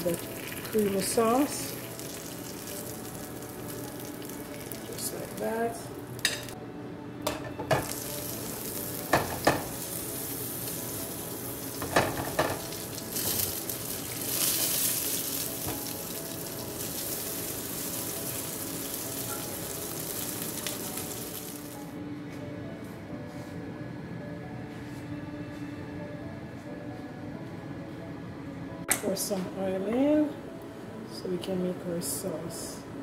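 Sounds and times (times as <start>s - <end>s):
fish sizzling in hot oil: 0.0s - 6.5s, 7.8s - 21.8s.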